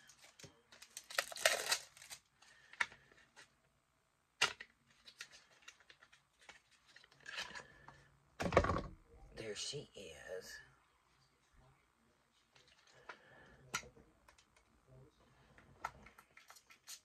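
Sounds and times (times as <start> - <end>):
packaging rustling and tearing: 0.0 - 2.3.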